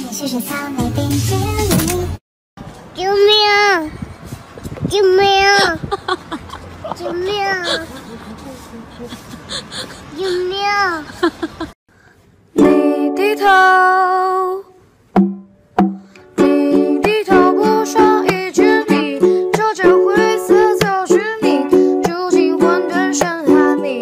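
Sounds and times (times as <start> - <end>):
ukulele music: 12.5 - 13.9, 15.2 - 24.0.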